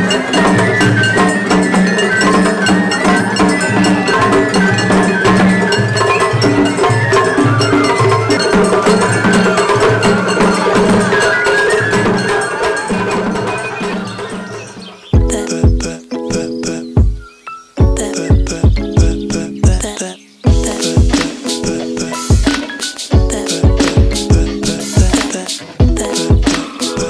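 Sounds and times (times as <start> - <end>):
hand gong clanging: 0.0 - 14.8
flute melody: 0.0 - 19.8
drums: 0.0 - 27.0.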